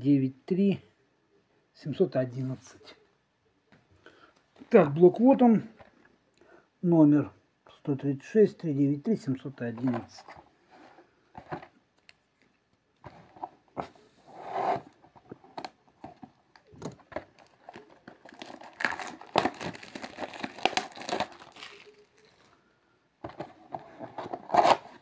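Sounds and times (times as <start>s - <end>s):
cardboard box tearing: 17.3s - 21.8s, 24.0s - 25.0s.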